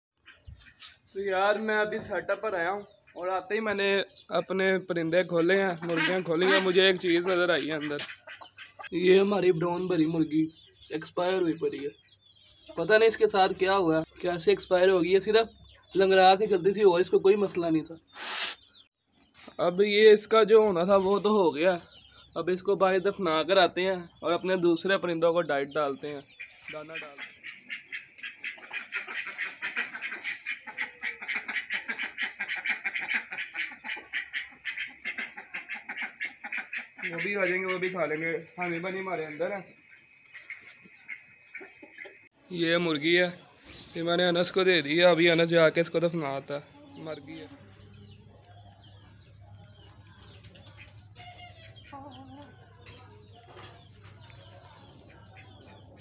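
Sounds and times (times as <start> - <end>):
ducks quacking: 0.2 - 4.3, 5.1 - 10.8, 25.6 - 42.4, 46.5 - 56.0
chickens clucking: 0.2 - 56.0.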